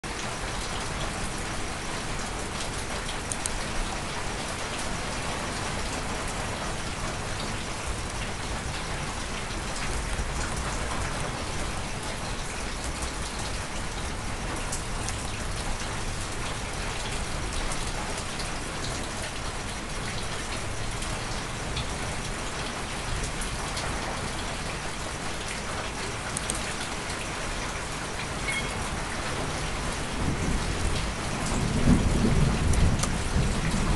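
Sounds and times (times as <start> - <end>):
steady rain hiss: 0.1 - 33.9.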